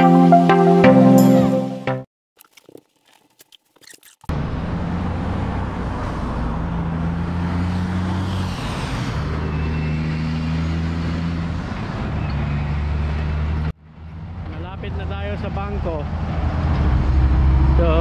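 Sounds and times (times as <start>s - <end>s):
road traffic noise: 4.2s - 18.0s
vehicle engine humming: 4.3s - 18.0s.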